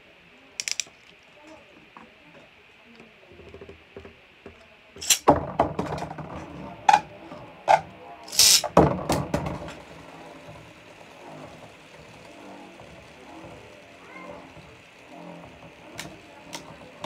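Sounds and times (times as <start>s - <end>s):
spinning top launcher rasp: 0.6s - 0.8s, 5.0s - 5.3s, 7.7s - 8.7s
spinning tops clattering: 0.6s - 0.9s, 5.0s - 5.3s, 7.7s - 8.8s.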